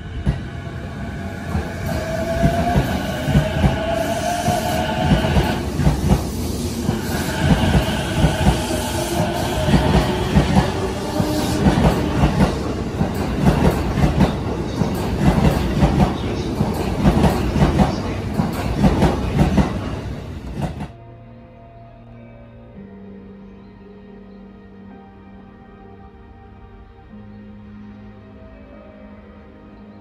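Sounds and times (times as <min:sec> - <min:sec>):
electric train rumbling past: 0:00.0 - 0:22.6
wheels clacking over rail joints: 0:01.4 - 0:20.9.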